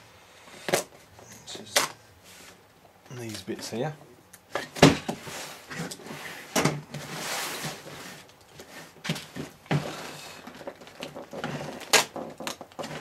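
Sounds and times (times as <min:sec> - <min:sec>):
cardboard scraping and sliding: 0:05.0 - 0:13.0.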